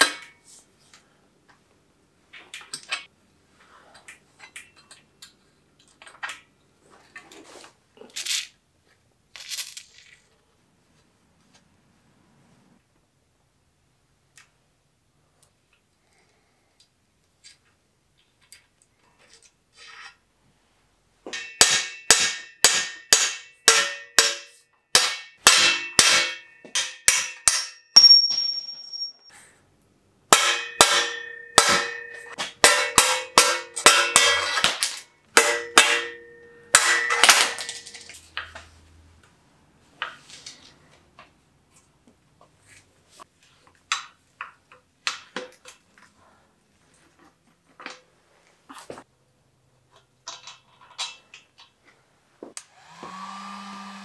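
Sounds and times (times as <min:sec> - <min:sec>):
metal-on-metal strikes ringing: 0:21.3 - 0:29.1, 0:30.3 - 0:34.7, 0:35.3 - 0:37.8.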